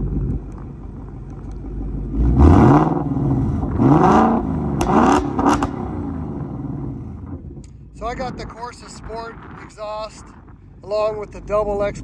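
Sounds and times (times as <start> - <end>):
car engine idling and revving: 0.0 - 8.0.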